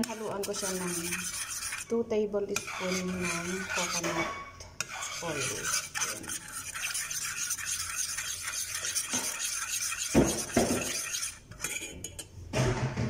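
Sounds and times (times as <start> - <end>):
metal spoon stirring in pot: 0.0 - 12.4.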